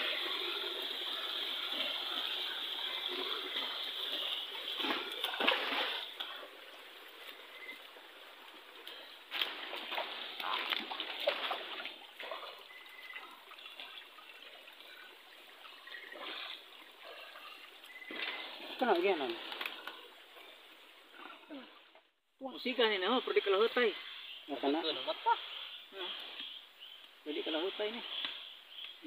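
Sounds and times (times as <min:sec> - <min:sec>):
stream water trickling: 0:00.0 - 0:22.0.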